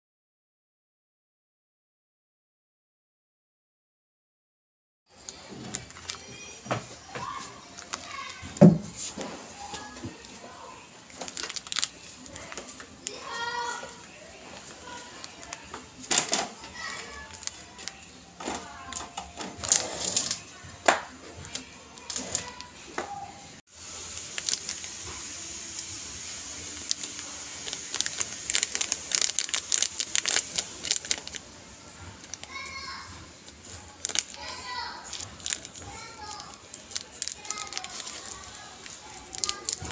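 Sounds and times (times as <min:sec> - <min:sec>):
plastic bag crinkling: 0:05.2 - 0:20.4, 0:23.8 - 0:32.8, 0:33.4 - 0:39.9.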